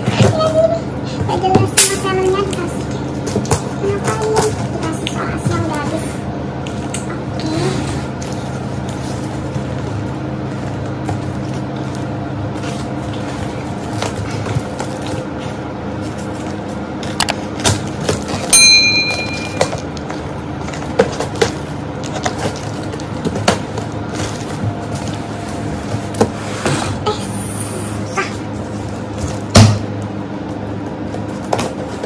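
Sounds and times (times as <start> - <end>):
click and bright chime: 18.6 - 19.8.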